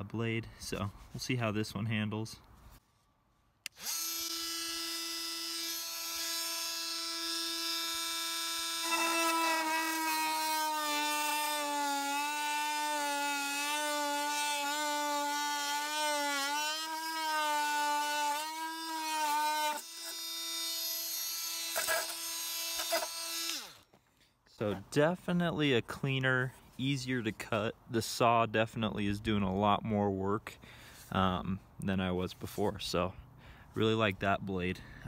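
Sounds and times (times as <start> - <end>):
oscillating multi-tool whine: 3.7 - 23.8
saw cutting into wood: 3.7 - 23.8.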